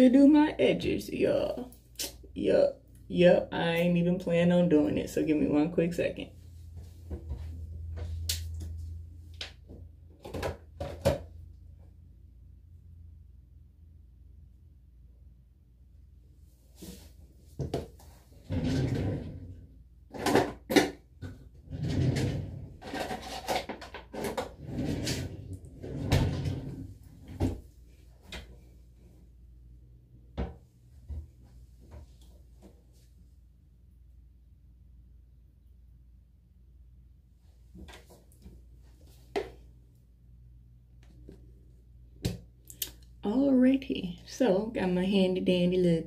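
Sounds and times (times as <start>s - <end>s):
low steady hum: 0.0s - 46.0s
clattering and rustling of items: 20.1s - 28.6s.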